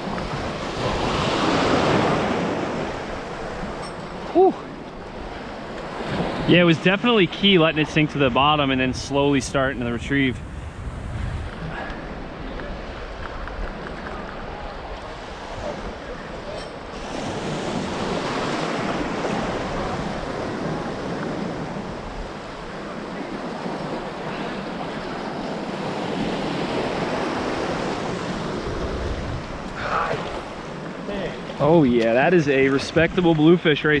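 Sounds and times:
surf swirling around wading legs: 0:00.0 - 0:34.0
wind on microphone: 0:08.1 - 0:30.5.

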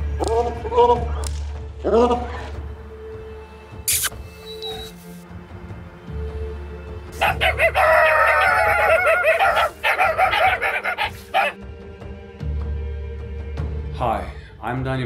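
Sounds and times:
puppies whining and yelping: 0:04.4 - 0:04.9, 0:07.2 - 0:11.6.

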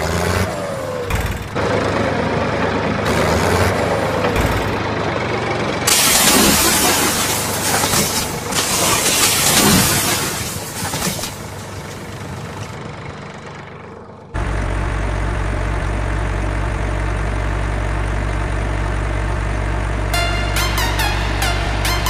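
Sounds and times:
truck engine idling: 0:00.0 - 0:22.0
loud hissing rustle: 0:05.9 - 0:12.7
falling electronic chirps: 0:20.2 - 0:22.0.

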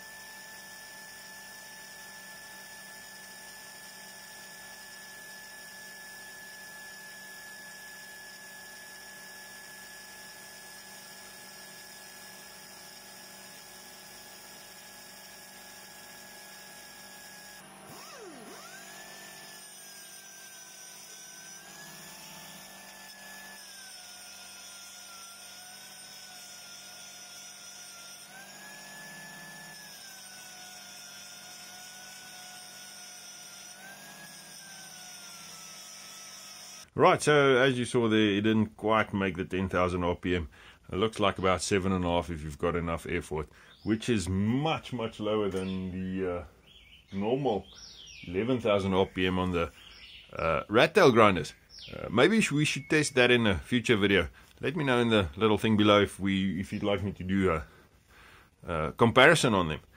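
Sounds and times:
pneumatic angle grinder whine: 0:00.0 - 0:37.0, 0:45.5 - 0:45.8.

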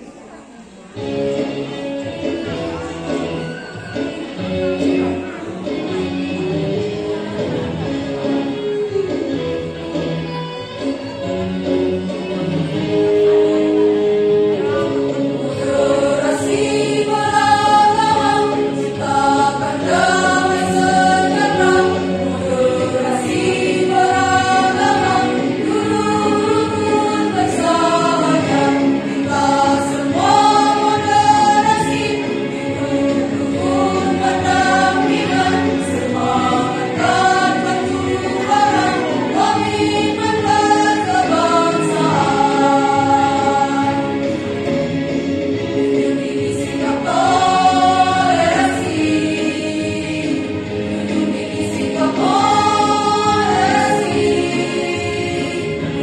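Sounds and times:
women's choir singing: 0:12.7 - 0:56.0.

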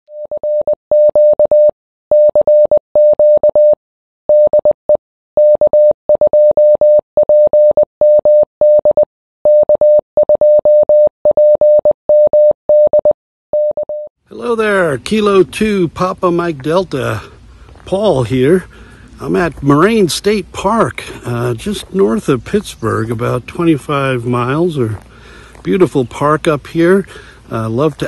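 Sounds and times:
morse code beeps: 0:00.1 - 0:14.1.

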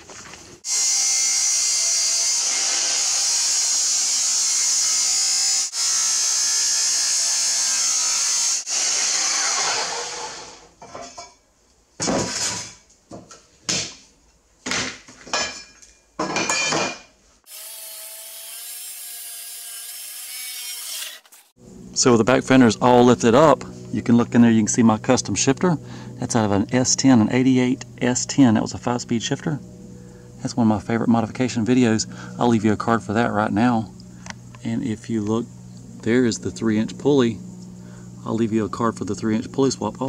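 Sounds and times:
chop saw cutting steel: 0:00.7 - 0:10.7, 0:17.5 - 0:21.6.

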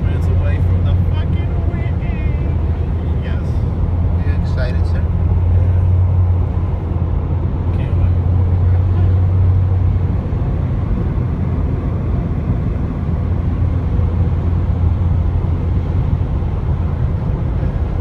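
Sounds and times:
car engine drone: 0:00.0 - 0:18.0
tyre road noise: 0:00.0 - 0:18.0.

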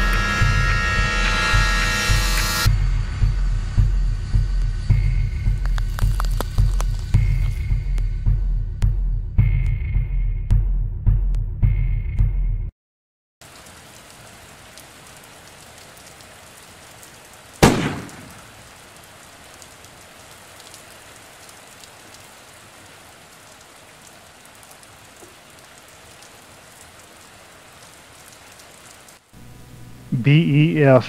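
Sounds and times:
steady rain falling: 0:00.0 - 0:08.3, 0:13.4 - 0:31.0
sharp thunderclap: 0:17.6 - 0:18.6.

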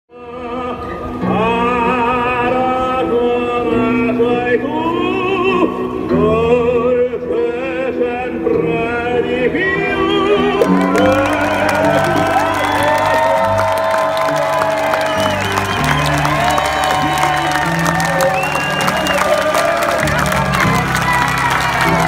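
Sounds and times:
singer holding vibrato notes: 0:00.2 - 0:22.0
live band playing: 0:10.1 - 0:22.0
steady bass line: 0:10.2 - 0:22.0.

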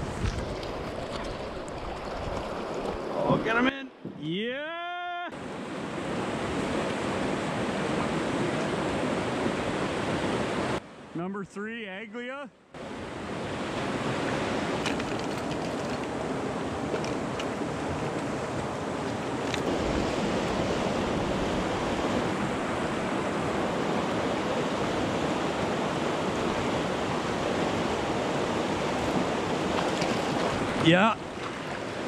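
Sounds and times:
river water rushing over rapid: 0:16.1 - 0:32.0.

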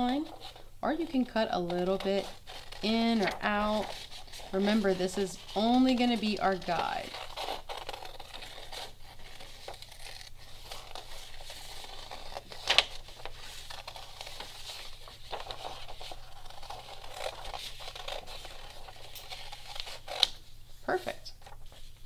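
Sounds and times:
scissors snipping paper: 0:00.0 - 0:13.0
paper rustling: 0:00.0 - 0:22.0.

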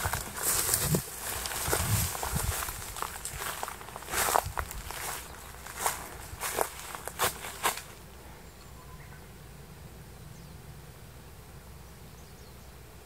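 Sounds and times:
footsteps crunching on dry leaves: 0:00.0 - 0:08.0.

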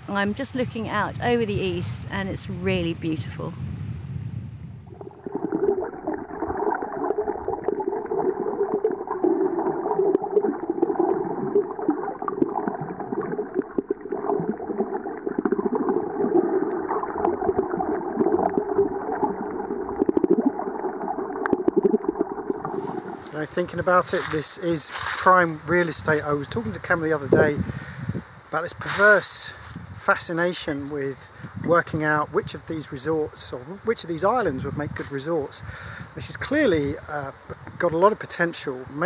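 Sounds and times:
underwater gurgling wash: 0:04.8 - 0:29.3
underwater crackling: 0:04.8 - 0:39.0.

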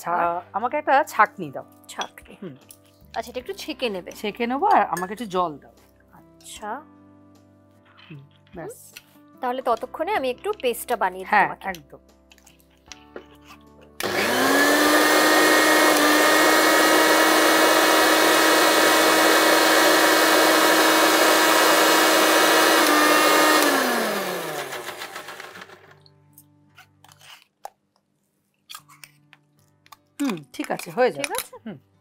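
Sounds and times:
mixer grinder motor whining: 0:14.0 - 0:26.0.

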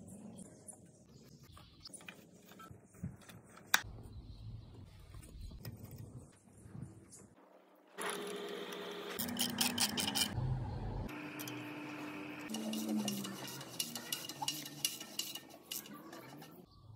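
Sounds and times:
spanners and ratchet clicking: 0:09.2 - 0:10.4, 0:12.5 - 0:16.6.

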